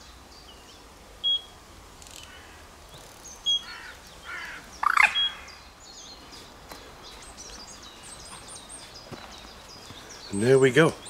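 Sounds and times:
birds chirping: 0:00.0 - 0:11.0
bird call: 0:01.2 - 0:01.5, 0:03.4 - 0:05.6.

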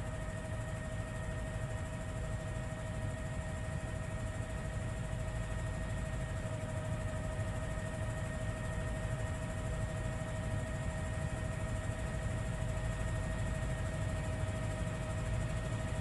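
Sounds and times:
helicopter engine running: 0:00.0 - 0:16.0.

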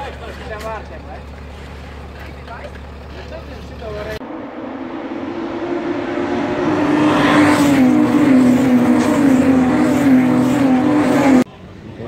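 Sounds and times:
race car engine approaching: 0:02.6 - 0:11.5.

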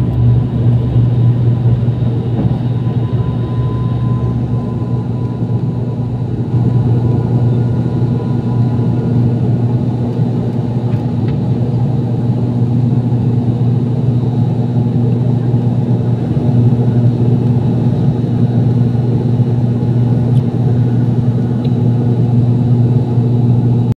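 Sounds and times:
faint high whine: 0:00.0 - 0:10.1
airliner engine and propeller droning: 0:00.0 - 0:24.0.

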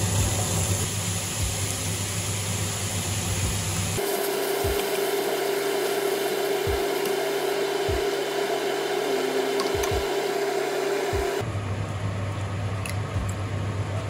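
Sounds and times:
meat sizzling in a frying pan: 0:00.0 - 0:09.0.

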